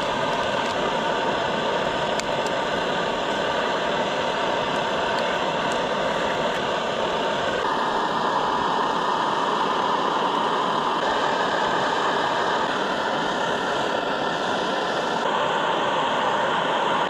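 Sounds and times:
camping stove rushing: 0.0 - 13.4.

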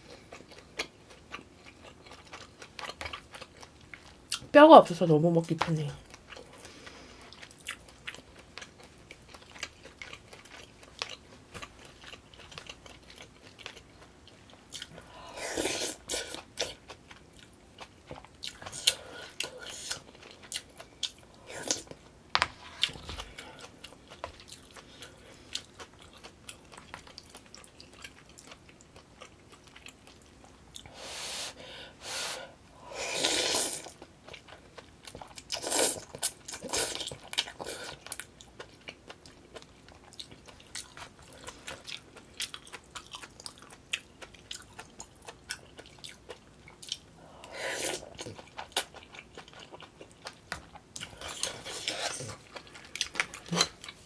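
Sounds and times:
slurping noodles: 31.1 - 33.9
wet chewing: 33.7 - 47.1, 47.9 - 54.0.

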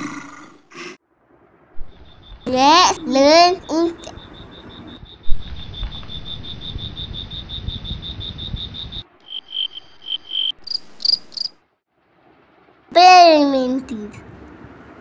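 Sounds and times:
cricket chirping: 1.8 - 11.6.

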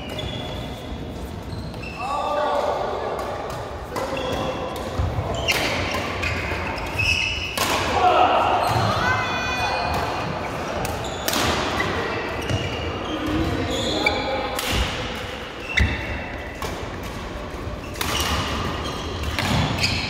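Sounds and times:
shoes squeaking on court floor: 0.0 - 2.3, 3.5 - 7.6, 9.6 - 14.5, 15.6 - 17.0, 17.6 - 20.0
racket hitting shuttlecock: 3.2 - 8.0, 17.9 - 20.0.

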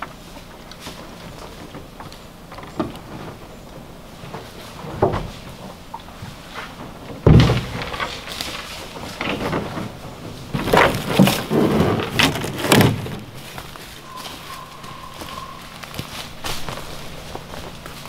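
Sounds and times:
hull scraping on leaves: 3.0 - 18.0
canoe thudding on ground: 6.8 - 13.9
footsteps in dry leaves: 10.9 - 18.0.

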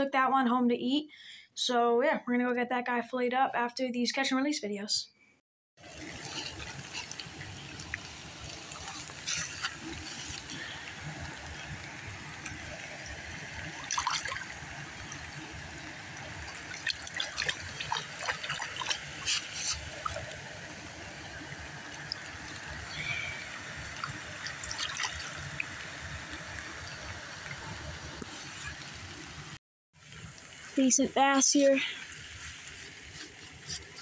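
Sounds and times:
shallow water splashing: 5.8 - 29.2.

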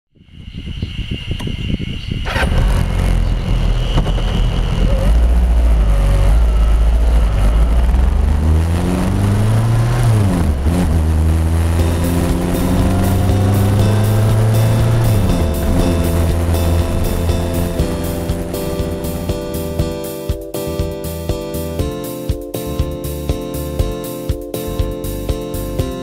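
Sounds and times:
wind rushing over microphone: 0.1 - 20.0
motorcycle engine accelerating: 1.7 - 22.0.

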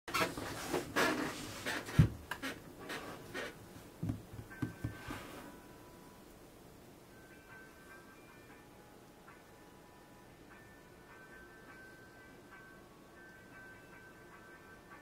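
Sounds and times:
soft knocks: 4.0 - 5.2.

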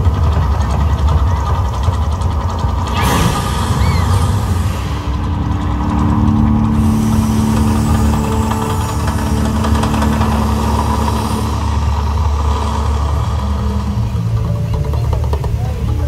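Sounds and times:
deep rumble of fire jets: 0.0 - 16.0
steady low droning tone: 0.0 - 16.0
bright rushing sound: 2.9 - 14.4.

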